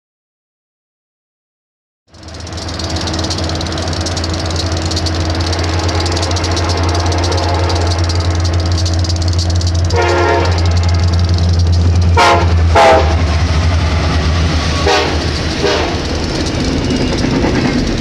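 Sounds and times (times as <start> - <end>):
diesel locomotive drone: 2.1 - 18.0
train horn blast: 5.6 - 8.3, 9.9 - 11.1, 12.1 - 13.3, 14.7 - 16.0.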